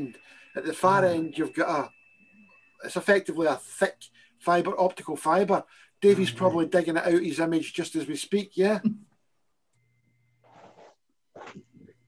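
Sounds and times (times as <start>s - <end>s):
faint steady hum: 0.0s - 12.0s
faint brief rustle: 10.4s - 11.6s.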